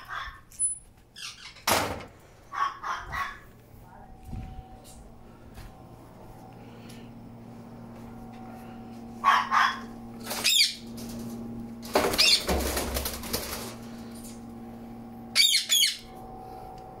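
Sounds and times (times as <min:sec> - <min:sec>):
faint steady hum: 0:00.1 - 0:17.0.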